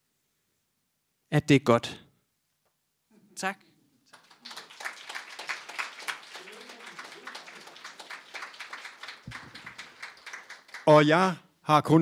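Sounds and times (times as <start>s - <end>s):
audience applauding: 4.1s - 11.1s
faint voice: 6.2s - 7.8s.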